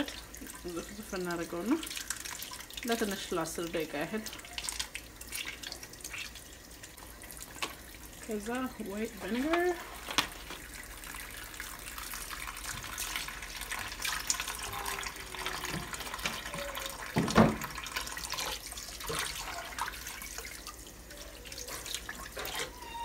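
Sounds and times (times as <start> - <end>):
faucet running into water: 0.0 - 23.0
knock or splash: 17.2 - 17.7.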